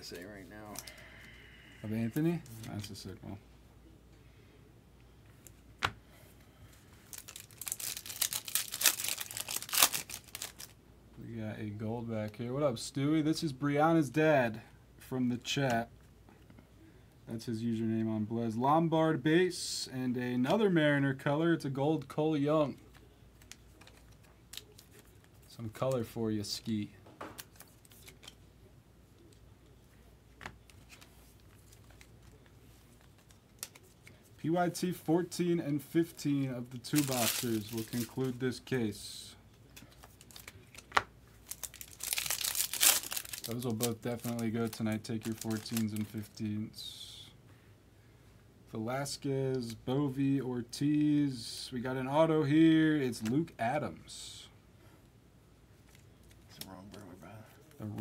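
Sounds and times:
wrapper crinkling and tearing: 7.0s - 10.8s, 23.4s - 25.3s, 30.9s - 34.2s, 36.8s - 38.4s, 39.8s - 46.3s.

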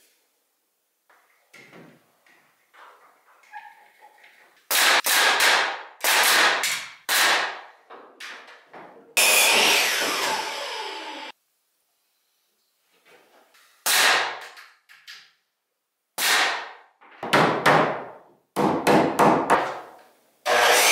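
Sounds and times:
loud noise: 9.2s - 11.3s
hammer striking nails: 16.2s - 19.8s.

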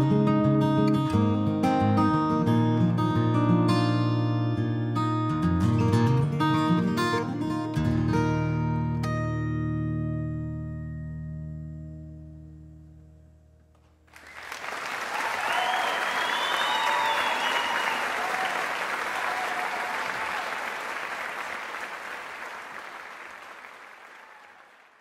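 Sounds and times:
acoustic guitar chord ringing: 0.0s - 13.6s
audience applause: 14.1s - 25.0s.

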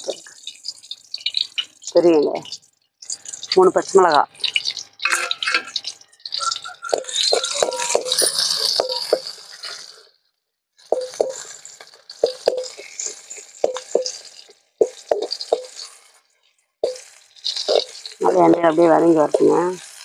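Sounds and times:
onions sizzling in oil: 0.0s - 10.1s, 10.8s - 20.0s
ladle scraping a metal pan: 5.0s - 10.0s.

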